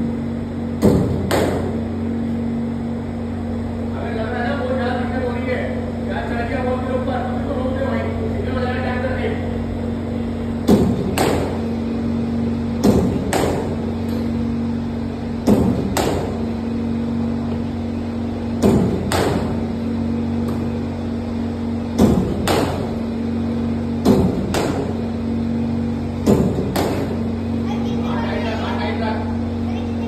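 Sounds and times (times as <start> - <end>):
steady hum: 0.0 - 30.0
bowling machine firing ball: 0.7 - 1.9, 10.6 - 11.9, 12.7 - 14.4, 15.4 - 16.7, 18.4 - 20.8, 21.8 - 23.3, 23.9 - 25.4, 26.1 - 27.4.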